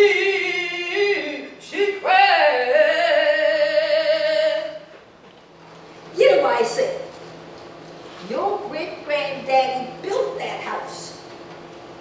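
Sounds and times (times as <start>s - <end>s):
woman singing: 0.0s - 4.8s.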